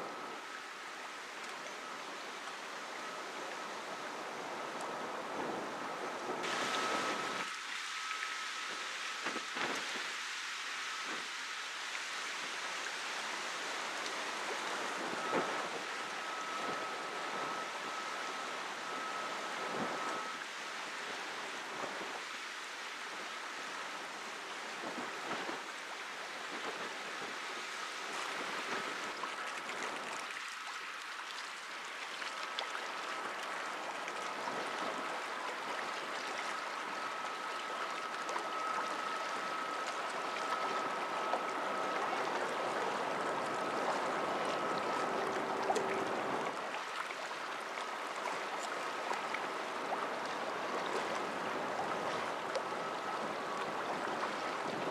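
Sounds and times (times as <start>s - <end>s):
wind: 0.0s - 54.9s
brief lower tone: 6.5s - 8.6s, 14.6s - 20.4s, 36.5s - 46.6s
faint high-pitched tone: 6.5s - 9.0s, 14.4s - 20.5s, 34.8s - 46.6s
water lapping: 28.0s - 54.9s.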